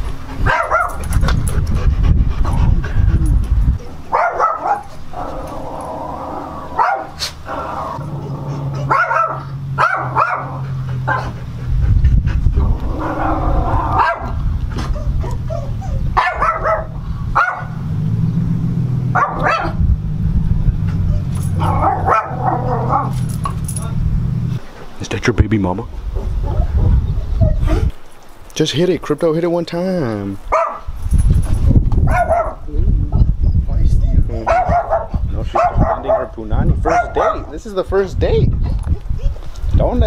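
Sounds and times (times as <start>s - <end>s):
dog barking and yipping: 0.4s - 1.6s, 3.8s - 5.9s, 6.6s - 11.6s, 13.0s - 17.9s, 19.1s - 19.8s, 20.9s - 24.0s, 30.5s - 30.9s, 32.0s - 32.6s, 34.4s - 37.5s.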